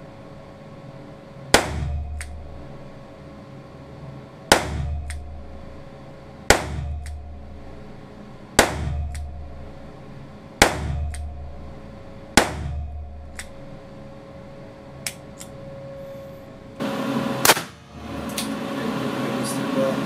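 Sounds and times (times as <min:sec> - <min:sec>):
revolver shots ringing: 0:04.5 - 0:05.3, 0:06.5 - 0:07.2, 0:10.6 - 0:11.5, 0:12.3 - 0:13.7.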